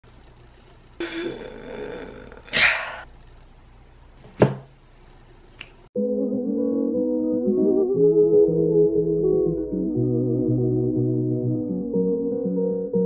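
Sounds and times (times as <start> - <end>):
woman groaning: 1.0 - 3.1
woman grunting: 1.0 - 3.1
woman sighing: 1.0 - 3.1
music with sustained tones: 6.0 - 13.0.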